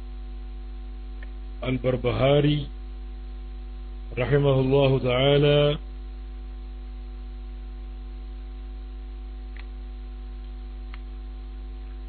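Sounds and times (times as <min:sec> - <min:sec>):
electrical mains hum: 0:00.0 - 0:12.0
faint clicks: 0:09.5 - 0:09.7, 0:10.4 - 0:11.1.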